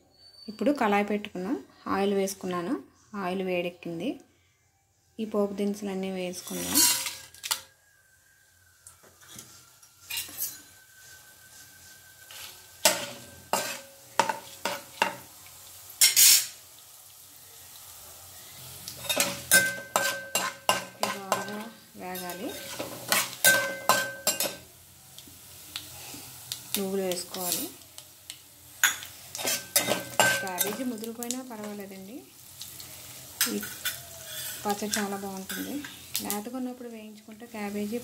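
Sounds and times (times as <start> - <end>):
spices sizzling in hot oil: 5.5 - 7.7, 8.3 - 38.0
metal spatula scraping a pan: 6.3 - 7.6, 9.2 - 11.4, 12.2 - 15.2, 16.0 - 16.6, 18.9 - 24.6, 28.8 - 31.1, 32.9 - 36.3.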